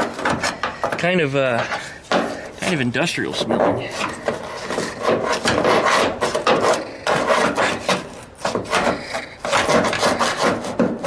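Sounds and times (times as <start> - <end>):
screwdriver scraping foam: 3.4 - 11.0.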